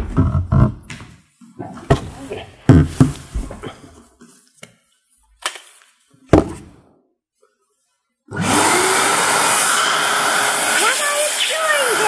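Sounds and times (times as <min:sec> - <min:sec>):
vacuum cleaner motor whine and rush: 0:08.3 - 0:12.0.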